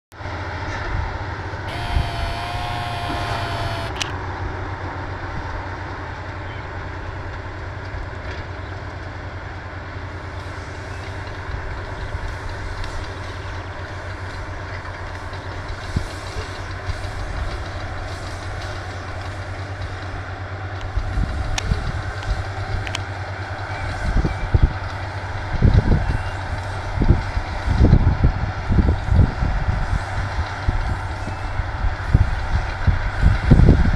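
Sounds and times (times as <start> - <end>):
faint clicks: 1.7 - 4.1
tractor engine running: 1.7 - 4.1.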